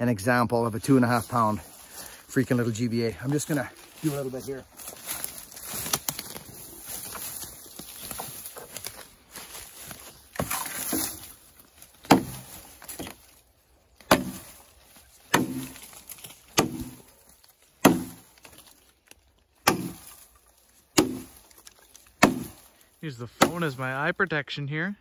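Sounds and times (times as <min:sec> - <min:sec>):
footsteps through dry brush: 0:00.7 - 0:24.1
axe chopping into log: 0:10.4 - 0:11.3, 0:12.0 - 0:13.2, 0:14.0 - 0:14.6, 0:15.2 - 0:17.1, 0:17.8 - 0:18.6, 0:19.6 - 0:20.2, 0:20.9 - 0:21.5, 0:22.2 - 0:22.7, 0:23.4 - 0:23.7.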